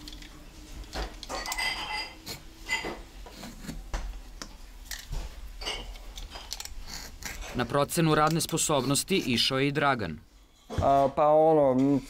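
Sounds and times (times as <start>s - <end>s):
vegetable peeler scraping potato: 3.2s - 3.8s, 6.8s - 9.7s.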